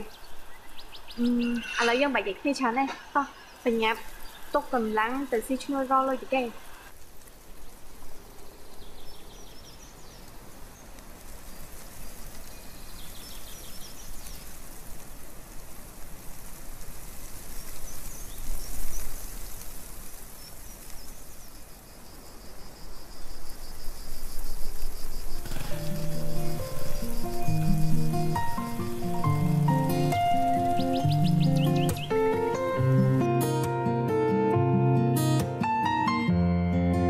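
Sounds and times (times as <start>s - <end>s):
faint high chirps: 0.0s - 5.3s
steady hiss: 0.0s - 34.1s.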